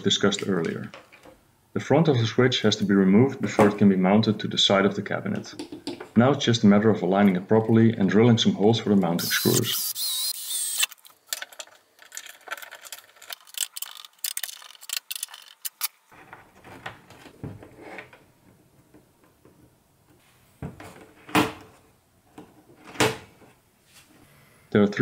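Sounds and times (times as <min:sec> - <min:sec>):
cordless drill boring: 0:09.2 - 0:11.0
small parts clicking and tapping: 0:09.2 - 0:16.0.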